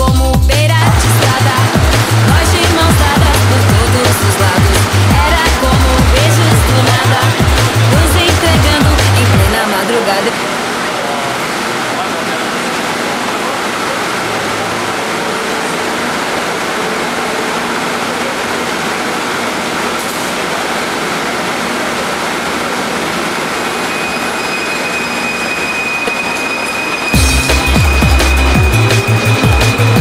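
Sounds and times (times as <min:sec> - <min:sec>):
music: 0:00.0 - 0:09.9, 0:27.1 - 0:30.0
high whine of train moving off: 0:00.4 - 0:30.0
metro train rushing noise: 0:00.5 - 0:30.0.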